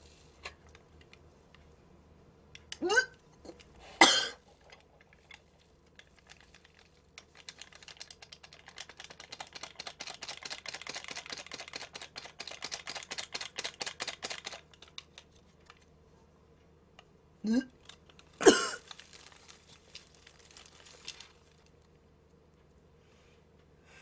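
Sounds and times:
seasoning sachet crinkling: 4.5 - 15.9, 17.8 - 22.0.

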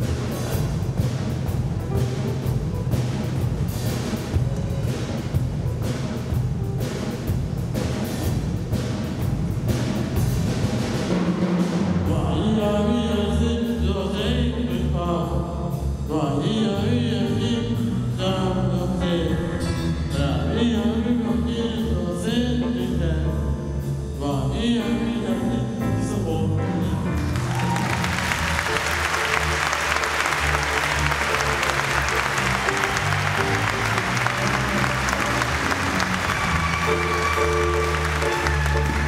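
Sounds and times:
drum strikes: 0.0 - 12.7, 18.9 - 21.9, 27.1 - 39.0
audience applause: 27.2 - 39.0.

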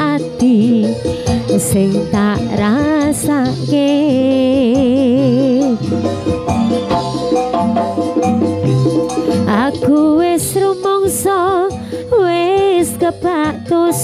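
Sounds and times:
drums: 0.0 - 14.0
sliding trembling lead melody: 1.3 - 11.7.

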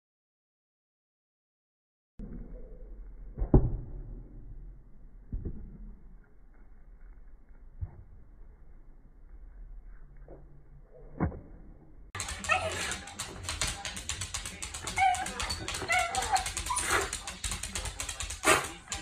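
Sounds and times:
dog whining and yipping: 14.8 - 17.1.

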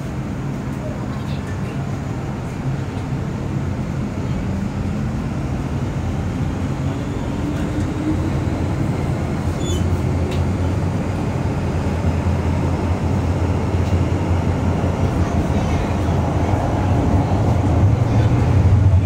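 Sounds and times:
train rumbling in tunnel: 0.0 - 19.0.

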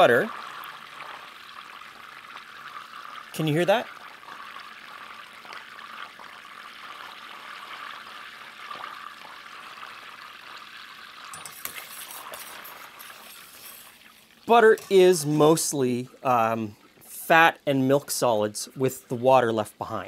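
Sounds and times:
butter sputtering in a pan: 0.0 - 14.9.

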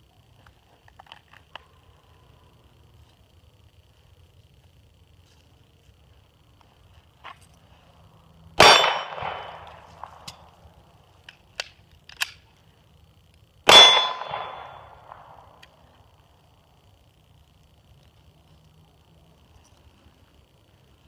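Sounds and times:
steel targets ringing: 8.6 - 9.8, 13.7 - 15.1
pistol shots: 8.6 - 10.3, 13.7 - 15.4
magazine change clicks: 11.2 - 12.4.

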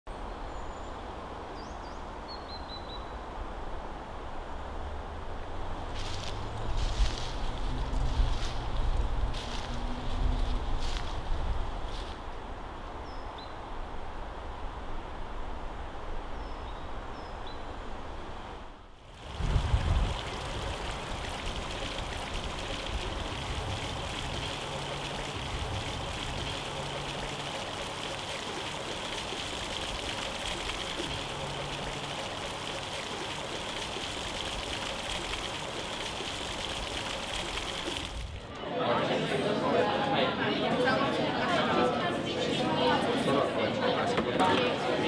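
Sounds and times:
fountain water splashing on stone: 19.1 - 38.4.

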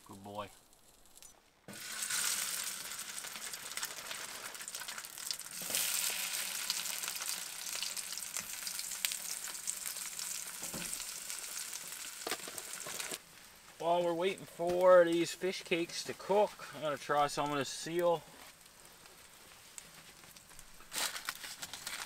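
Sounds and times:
fish cakes sizzling in a pan: 1.7 - 13.8.

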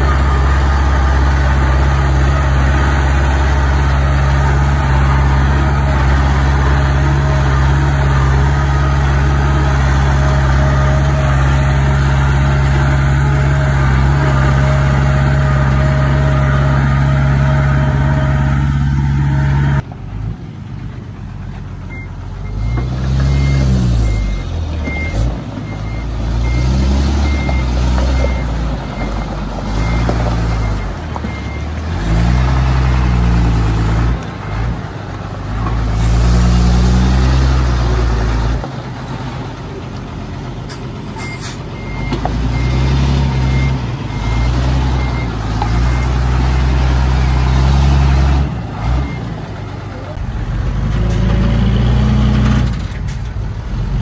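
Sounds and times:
bulldozer engine revving: 0.0 - 54.0.

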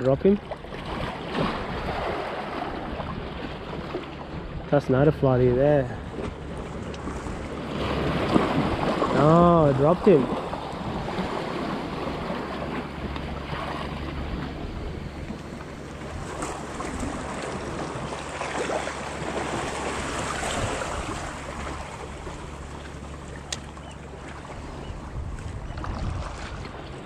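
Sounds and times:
water washing against rocks: 16.2 - 21.9
wind noise on microphone: 19.4 - 21.6, 24.6 - 27.0.

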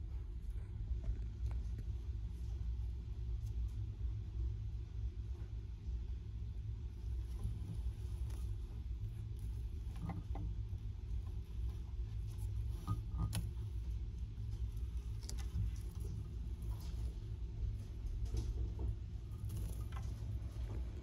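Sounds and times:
steady low rumble: 0.0 - 21.0.

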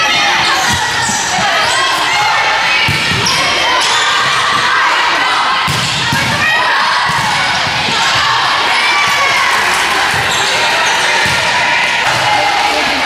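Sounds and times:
echoing chatter: 0.0 - 13.0
players calling out: 0.0 - 13.0
volleyball hits: 2.7 - 4.8, 5.5 - 13.0.

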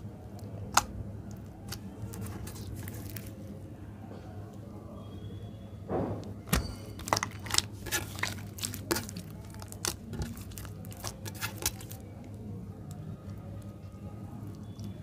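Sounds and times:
slime clicking and popping: 0.7 - 3.2, 6.5 - 12.1.

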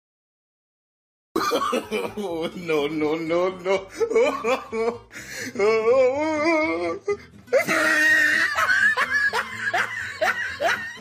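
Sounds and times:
person laughing: 1.4 - 11.0.

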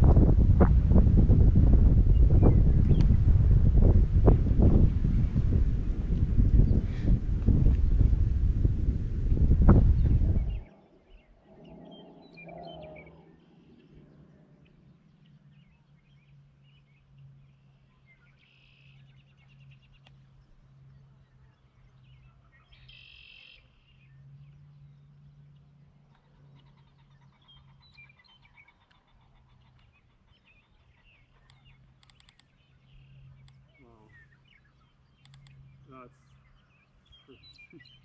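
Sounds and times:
low steady hum: 0.0 - 38.0
bird chirps and calls: 10.0 - 20.2, 21.6 - 24.2, 26.2 - 38.0.

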